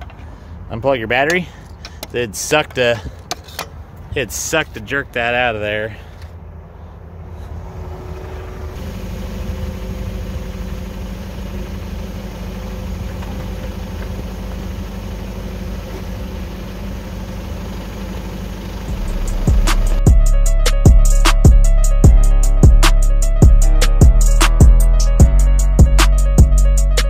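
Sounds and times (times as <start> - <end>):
forklift engine idling: 8.0 - 20.3.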